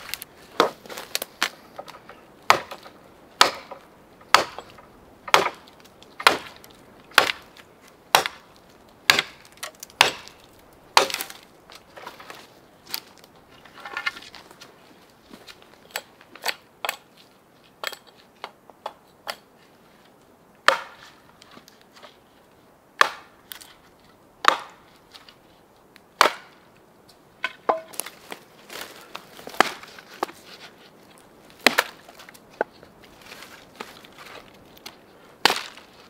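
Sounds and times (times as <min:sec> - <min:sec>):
axe chopping wood: 0:00.6 - 0:08.5, 0:09.1 - 0:10.4, 0:11.0 - 0:11.4, 0:20.6 - 0:21.0, 0:23.0 - 0:23.4, 0:24.4 - 0:24.8, 0:26.2 - 0:26.6, 0:27.4 - 0:28.1, 0:29.4 - 0:30.4, 0:31.6 - 0:32.2, 0:35.4 - 0:35.8.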